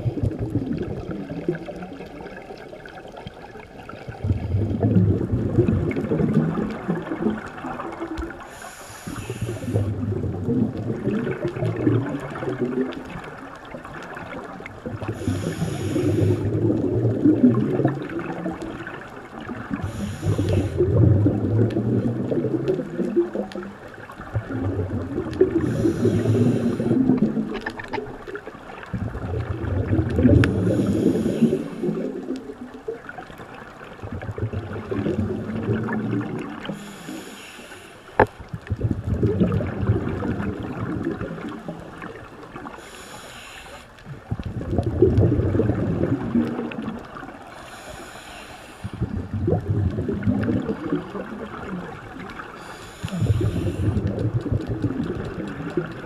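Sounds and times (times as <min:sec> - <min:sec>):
gurgling exhaled bubbles: 0:00.0 - 0:37.4, 0:38.1 - 0:56.0
regulator hissing inhale: 0:08.4 - 0:09.9, 0:15.1 - 0:16.5, 0:19.7 - 0:21.0, 0:25.6 - 0:27.2, 0:30.5 - 0:32.0, 0:36.6 - 0:38.3, 0:42.7 - 0:44.0, 0:47.5 - 0:49.1, 0:52.5 - 0:54.1.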